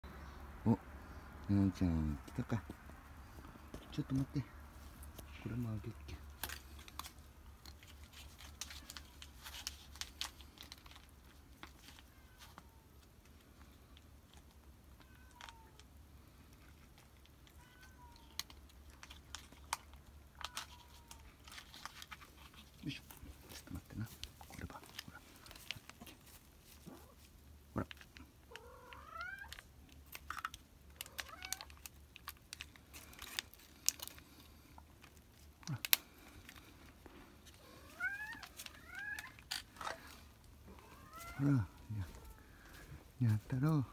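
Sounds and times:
cat crunching dry kibble: 0:03.9 - 0:43.8
cat meowing: 0:11.9 - 0:12.9, 0:15.0 - 0:15.8, 0:17.5 - 0:18.5, 0:20.3 - 0:21.4, 0:28.5 - 0:29.6, 0:31.0 - 0:31.8, 0:37.6 - 0:42.8.

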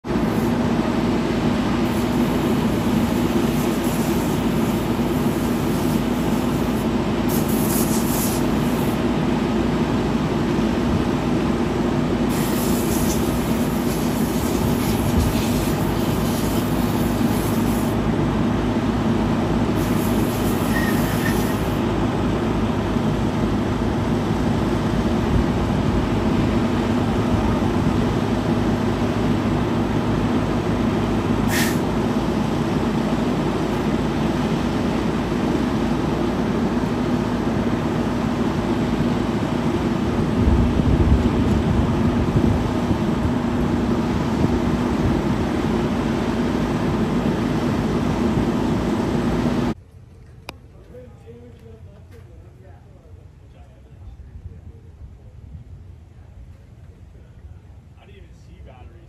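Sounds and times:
diesel engine drone: 0:00.0 - 0:59.0
deeper hum and low throb: 0:08.3 - 0:49.8.

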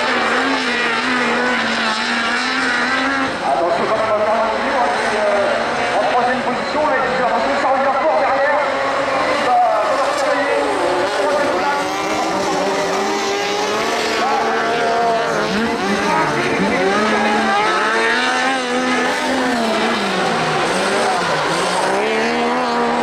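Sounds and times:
buggy engines revving: 0:00.0 - 0:23.0.

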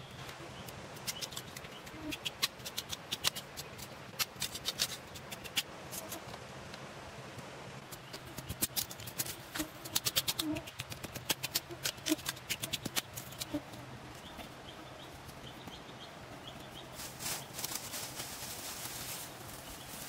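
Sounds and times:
sharp clicks and snaps: 0:00.6 - 0:06.1, 0:07.9 - 0:13.6.

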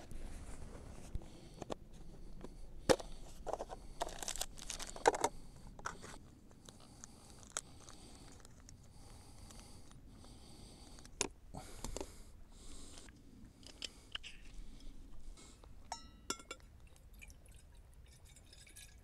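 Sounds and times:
plastic case clicks and rattles: 0:02.9 - 0:06.0.

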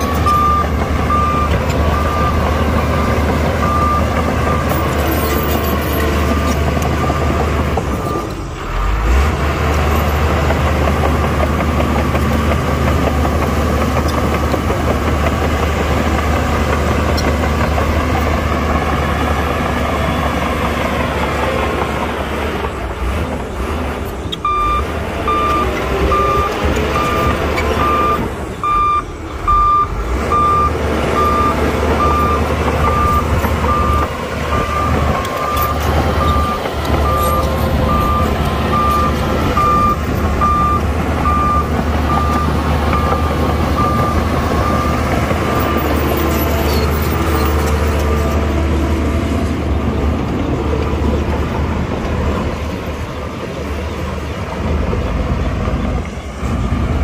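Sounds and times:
reversing alarm beeping: 0:00.0 - 0:08.4, 0:24.4 - 0:46.1
heavy diesel machinery running: 0:00.0 - 0:57.0.

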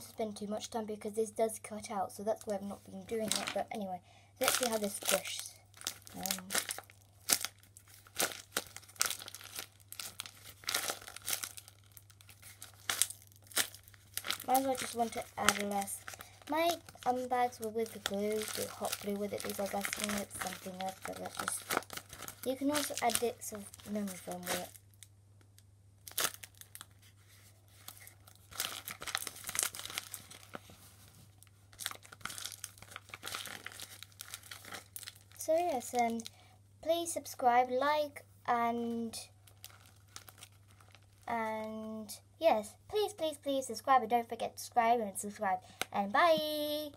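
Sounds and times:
paper and plastic crinkling: 0:02.4 - 0:03.7, 0:04.4 - 0:25.0, 0:26.1 - 0:36.3, 0:39.4 - 0:41.3.

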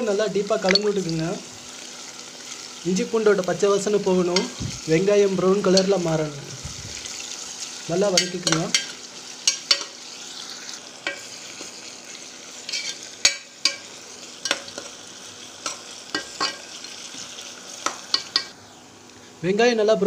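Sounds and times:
onions sizzling in oil: 0:00.0 - 0:20.0
metal spoon scraping a pot: 0:12.7 - 0:13.8.

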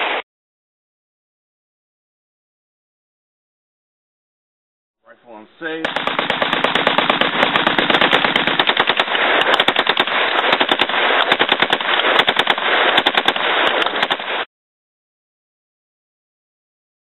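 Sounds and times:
submachine gun rapid firing: 0:05.8 - 0:14.5.

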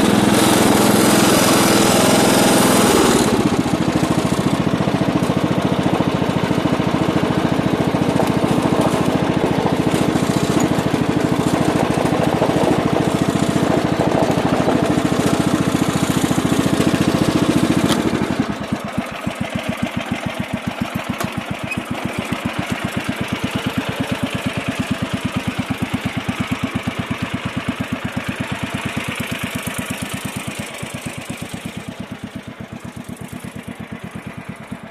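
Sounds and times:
lawn tractor engine running: 0:00.0 - 0:34.9.

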